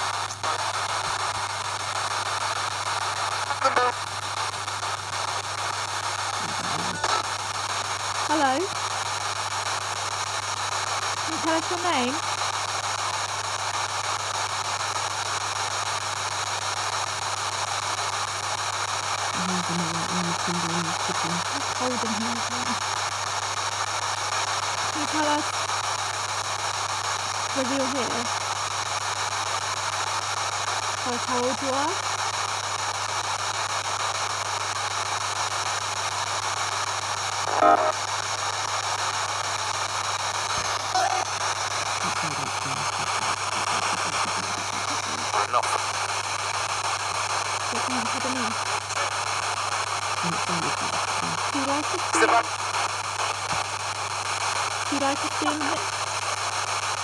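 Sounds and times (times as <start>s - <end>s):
radio broadcast fragments: 0.0s - 2.2s, 2.9s - 7.5s, 8.3s - 8.8s, 11.2s - 13.0s, 19.4s - 22.9s, 24.9s - 25.5s, 27.5s - 28.4s, 37.2s - 53.9s, 54.8s - 56.1s
radio static hiss: 0.0s - 57.0s.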